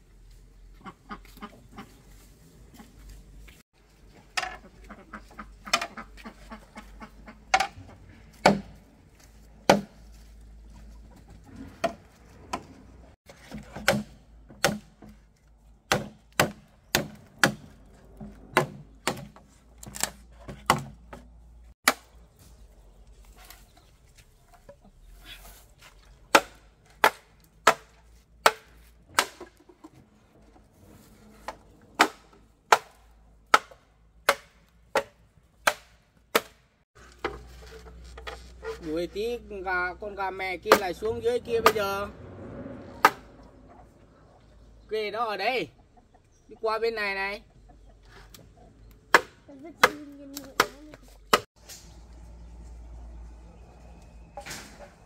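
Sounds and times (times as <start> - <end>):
chickens clucking: 0.7 - 3.1, 4.2 - 8.3, 10.6 - 12.7, 45.6 - 46.8, 47.4 - 49.0.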